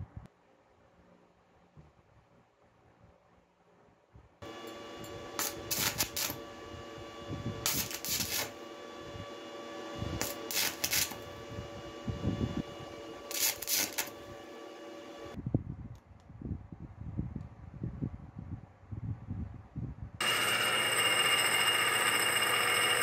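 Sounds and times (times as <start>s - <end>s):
welder hum: 4.4s - 15.4s, 20.2s - 23.0s
electrode arc crackle: 5.4s - 6.5s, 7.6s - 8.6s, 10.2s - 11.3s, 13.2s - 14.5s.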